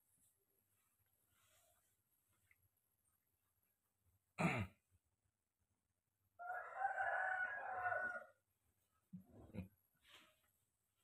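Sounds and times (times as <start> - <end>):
rooster crowing: 6.4 - 8.4.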